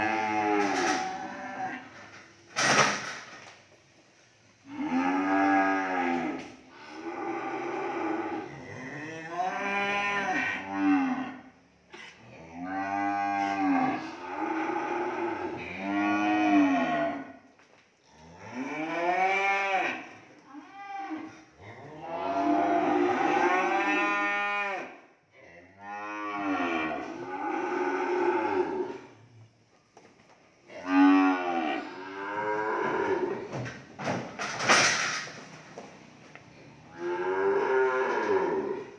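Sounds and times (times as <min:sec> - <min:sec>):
cattle mooing: 0:00.0 - 0:02.1, 0:04.6 - 0:11.4, 0:12.2 - 0:17.3, 0:21.0 - 0:24.9, 0:25.6 - 0:29.1, 0:30.8 - 0:33.7, 0:36.8 - 0:38.9.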